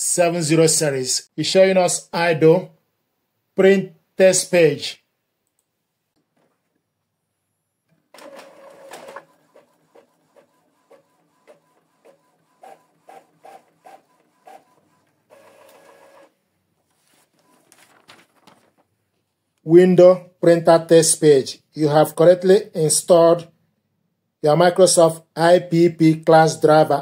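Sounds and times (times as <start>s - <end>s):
printer mechanical whir: 8.2s - 16.3s.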